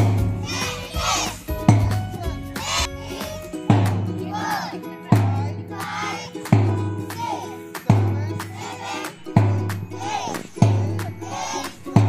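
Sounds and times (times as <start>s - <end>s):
heavy drum beat: 0.0s - 4.2s, 5.1s - 5.7s, 6.5s - 7.0s, 7.8s - 12.0s
voices singing: 0.0s - 12.0s.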